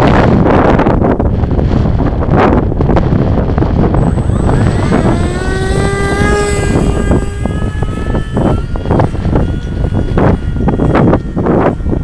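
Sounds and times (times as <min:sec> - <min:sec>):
wind buffeting microphone: 0:00.0 - 0:12.0
model plane motor whine: 0:03.5 - 0:12.0.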